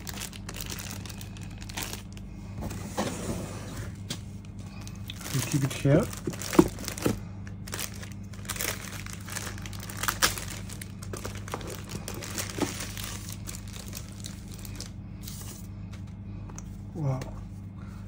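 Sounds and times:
plastic bag crinkling: 0.0s - 2.3s, 4.7s - 15.5s.

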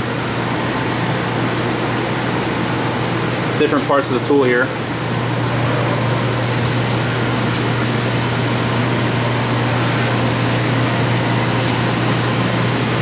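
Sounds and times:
rush of air from fans: 5.5s - 13.0s.

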